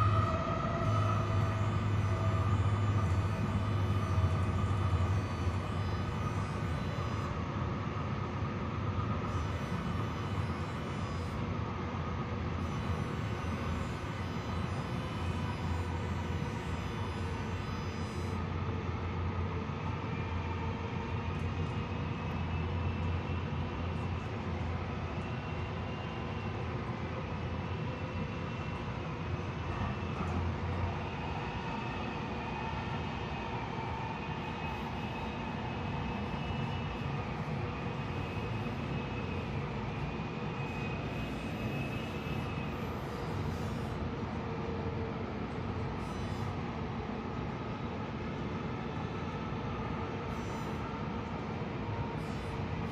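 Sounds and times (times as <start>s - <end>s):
train rumbling on rails: 0.0s - 9.2s, 18.4s - 45.7s
high wavering whine: 0.0s - 47.1s.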